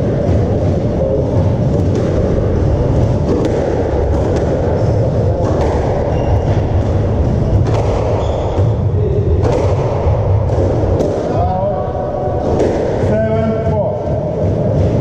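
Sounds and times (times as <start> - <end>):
low steady rumble: 0.0 - 15.0
squash ball cracking off rackets: 3.1 - 8.8, 9.4 - 11.4, 12.4 - 13.0
shoe squeaks on wooden floor: 8.1 - 8.7.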